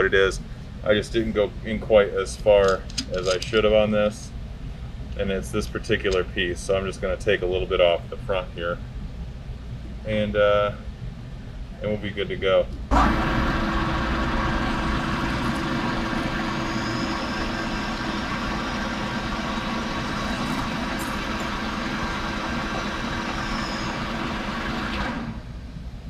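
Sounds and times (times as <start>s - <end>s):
lathe tool cutting metal: 12.9s - 25.4s
metal lathe running: 12.9s - 25.5s.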